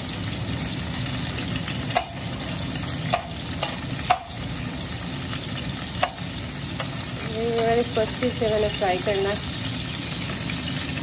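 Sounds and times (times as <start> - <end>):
garlic sizzling in oil: 0.0 - 11.0.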